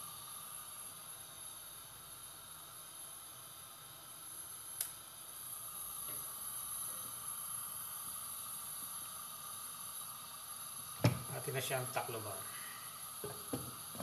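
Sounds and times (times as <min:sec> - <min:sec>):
chicken hissing in oil: 0:00.0 - 0:14.0.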